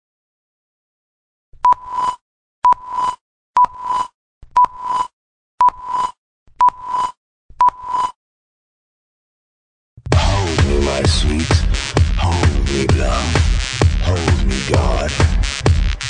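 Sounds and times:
electronic beeps: 0:01.7 - 0:08.2.

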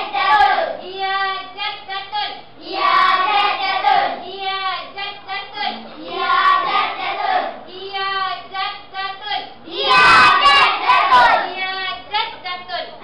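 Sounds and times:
children singing in unison: 0:00.0 - 0:00.8, 0:02.6 - 0:04.2, 0:05.7 - 0:07.6, 0:09.8 - 0:11.5.

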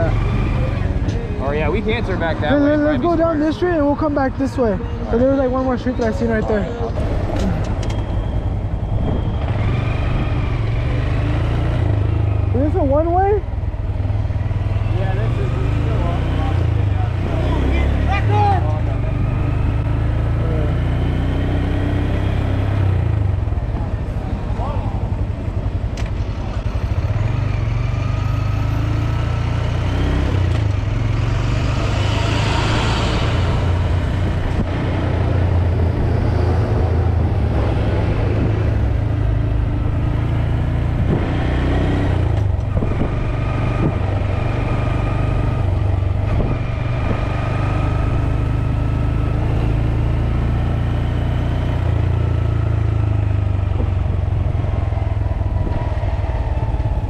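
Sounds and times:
motorcycle engine whine: 0:00.0 - 0:57.0
wind rumble on microphone: 0:33.1 - 0:40.1, 0:40.7 - 0:45.0, 0:45.9 - 0:47.6, 0:53.5 - 0:57.0.

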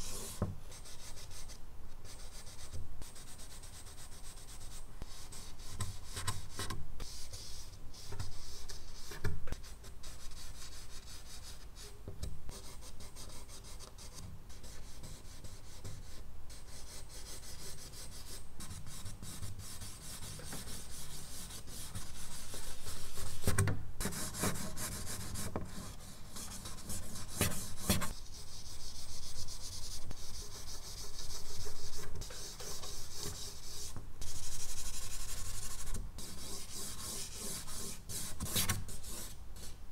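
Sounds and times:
charcoal scratching on paper: 0:16.6 - 0:39.8.

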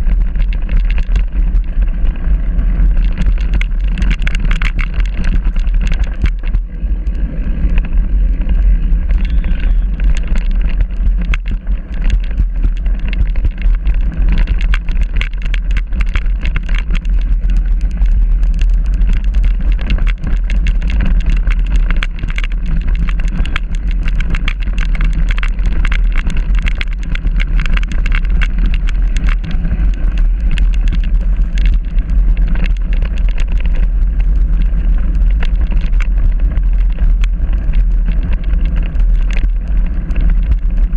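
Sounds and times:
bike rattling: 0:00.0 - 0:40.9
wind rumble on microphone: 0:00.0 - 0:40.9.

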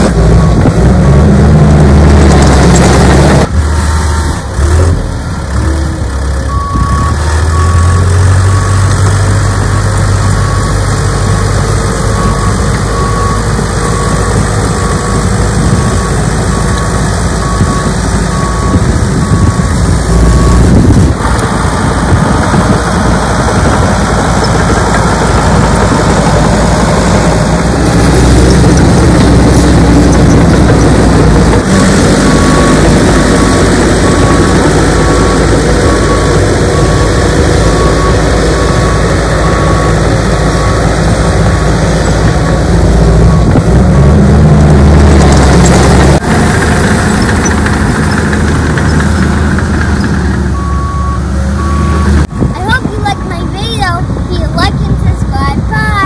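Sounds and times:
heavy diesel engines working: 0:00.0 - 0:56.0
reversing alarm beeping: 0:06.5 - 0:09.0, 0:09.6 - 0:21.0, 0:27.9 - 0:42.6, 0:49.9 - 0:53.4.

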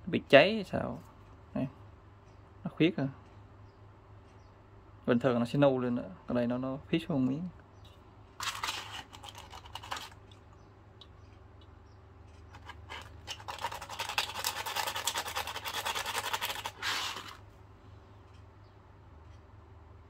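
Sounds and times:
sandpaper scraping metal: 0:12.6 - 0:17.4.

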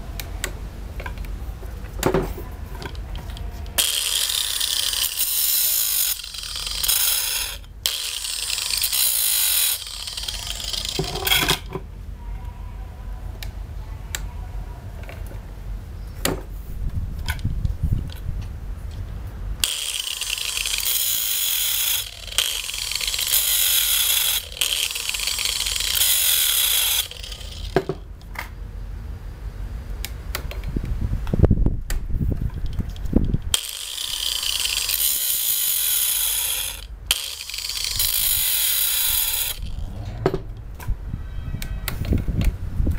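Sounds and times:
angle grinder grinding metal: 0:03.8 - 0:11.7, 0:19.6 - 0:28.0, 0:33.5 - 0:40.9.

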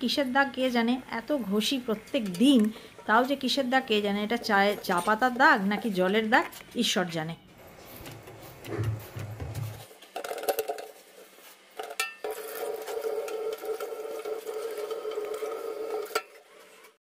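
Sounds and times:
scouring pad rubbing: 0:07.6 - 0:09.9.

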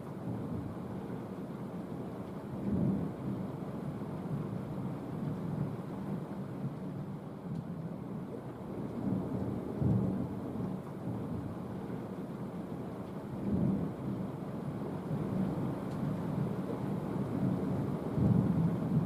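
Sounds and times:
rain hiss: 0:00.0 - 0:19.0
rolling thunder: 0:15.1 - 0:19.0.

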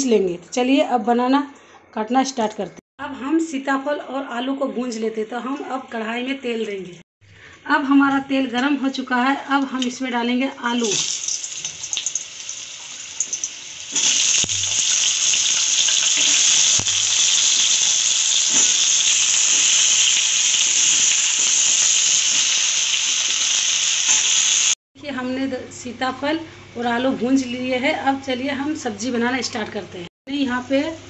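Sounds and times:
potatoes sizzling in hot oil: 0:10.8 - 0:24.8.

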